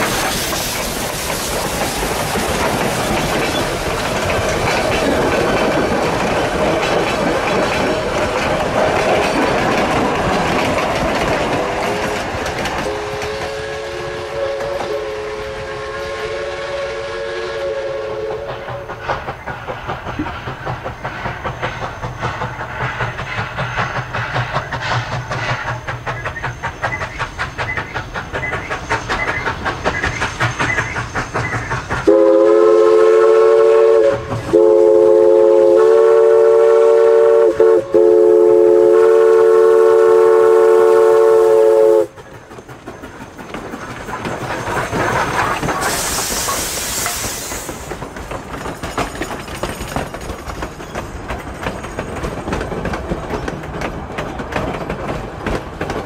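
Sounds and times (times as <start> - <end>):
steam locomotive chuffing: 0.0 - 56.0
train wheels clattering: 0.0 - 56.0
steam whistle: 12.8 - 19.0, 32.0 - 42.2.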